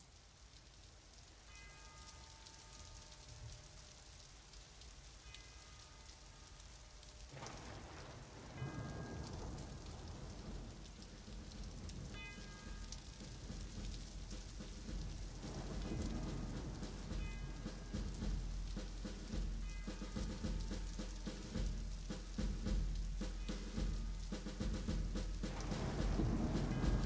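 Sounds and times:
rain-like hiss: 0:00.0 - 0:27.0
soft ringing chimes: 0:01.4 - 0:03.8, 0:08.5 - 0:13.9, 0:19.3 - 0:21.8.

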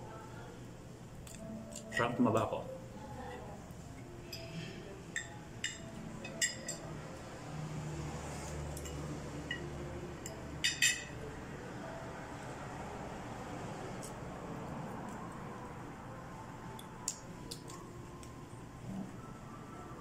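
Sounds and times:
cutlery clinking on a plate: 0:05.2 - 0:06.9, 0:08.8 - 0:11.2.

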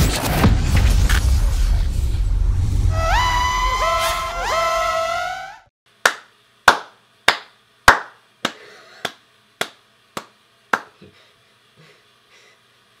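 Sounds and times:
person clapping slowly: 0:06.0 - 0:11.0.

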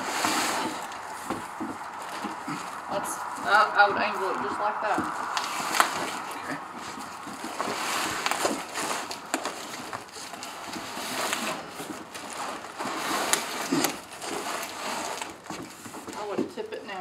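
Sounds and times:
cardboard scraping and rustling: 0:00.0 - 0:16.7.

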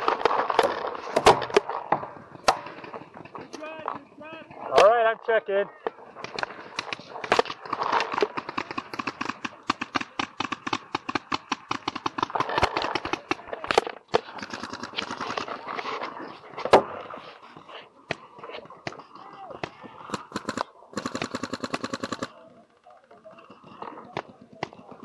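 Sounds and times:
paintball markers firing: 0:05.9 - 0:17.0, 0:18.0 - 0:22.6, 0:23.2 - 0:25.0.

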